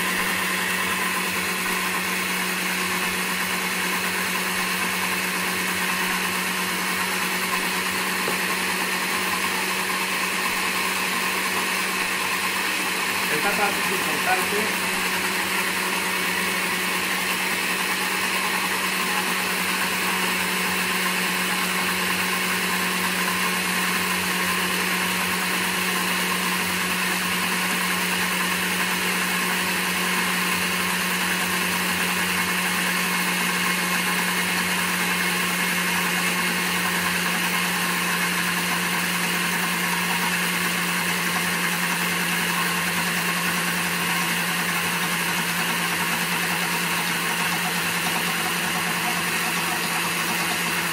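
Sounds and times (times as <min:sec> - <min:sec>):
blender motor running: 0:00.0 - 0:50.9.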